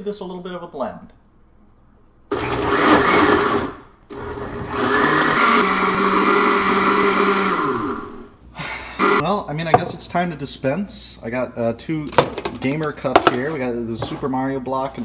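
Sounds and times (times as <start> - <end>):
blender running: 2.3 - 8.3, 9.0 - 9.2.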